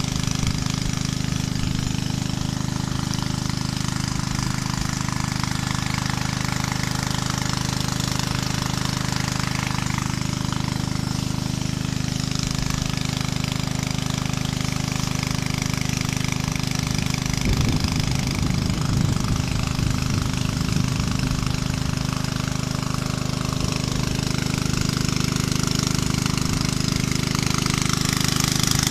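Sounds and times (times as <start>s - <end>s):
small engine running steadily: 0.0s - 28.9s.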